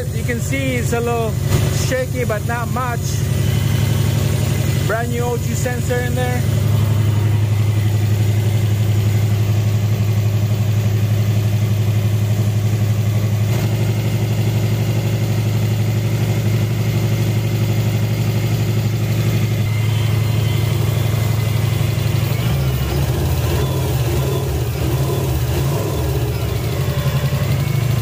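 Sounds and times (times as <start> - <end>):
car engine idling: 0.0 - 28.0.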